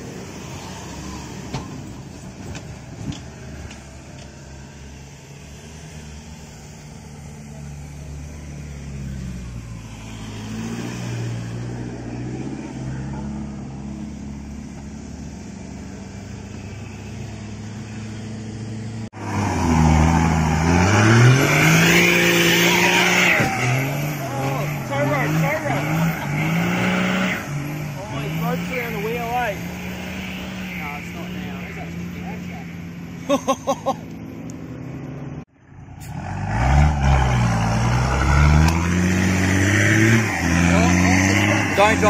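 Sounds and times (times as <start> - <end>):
engines running at low revs: 0.0 - 42.0
engine revving hard: 8.8 - 14.0, 19.2 - 32.7, 36.0 - 42.0.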